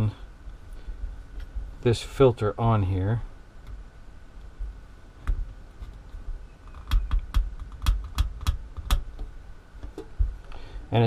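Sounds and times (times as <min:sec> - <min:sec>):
sharp plastic clicks: 0:06.7 - 0:10.1
light handling knocks: 0:06.7 - 0:10.4.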